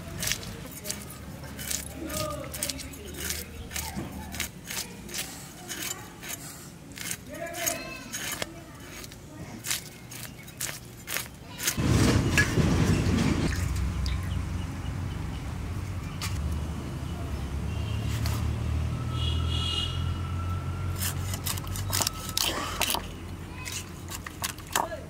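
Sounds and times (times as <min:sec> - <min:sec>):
fish scales scraped on blade: 0:00.0 - 0:11.8, 0:20.9 - 0:24.8.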